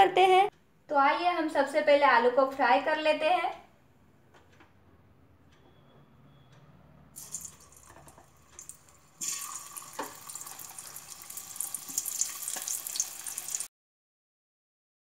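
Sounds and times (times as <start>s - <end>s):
potatoes sizzling in hot oil: 8.6s - 13.7s.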